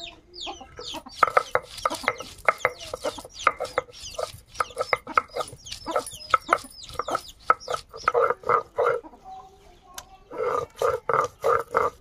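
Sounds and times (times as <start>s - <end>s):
hens clucking: 0.0s - 12.0s
thin high chirps: 0.4s - 9.0s.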